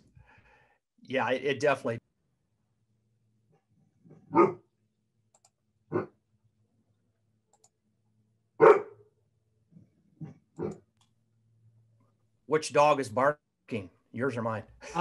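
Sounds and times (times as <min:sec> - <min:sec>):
dog barking: 0:04.3 - 0:04.7, 0:05.9 - 0:06.2, 0:08.6 - 0:09.1.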